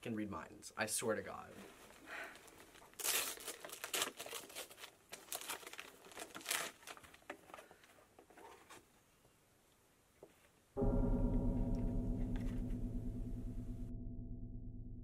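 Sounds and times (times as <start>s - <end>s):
wrapping paper rustling and tearing: 1.5s - 8.8s.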